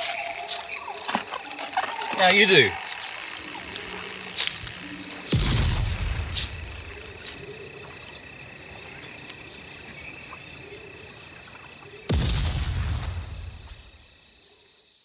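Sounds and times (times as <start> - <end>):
insects chirping: 0.0 - 15.0
deep boom: 5.3 - 6.7.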